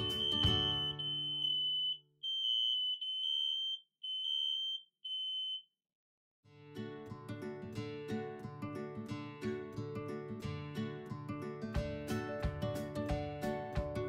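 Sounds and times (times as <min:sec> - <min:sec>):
background music: 0:00.0 - 0:01.2, 0:11.7 - 0:14.0
acoustic guitar music: 0:00.0 - 0:01.8, 0:06.5 - 0:14.0
electronic alarm beeping: 0:00.0 - 0:05.7.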